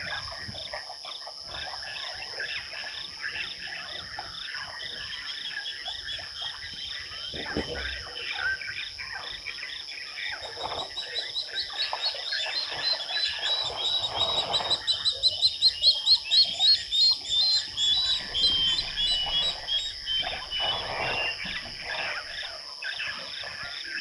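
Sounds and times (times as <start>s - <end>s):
frogs croaking: 0.0s - 24.0s
high insect trill: 0.0s - 24.0s
rapid high chirping: 8.1s - 24.0s.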